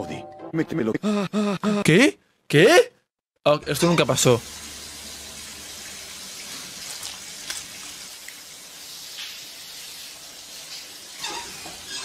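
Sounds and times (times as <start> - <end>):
shower water spraying: 4.0 - 12.0.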